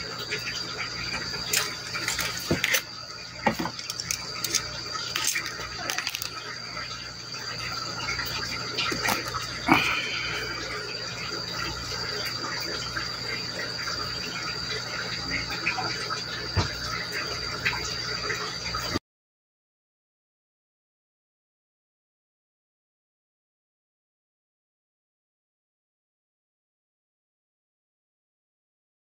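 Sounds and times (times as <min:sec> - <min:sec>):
high insect trill: 0:00.0 - 0:19.0.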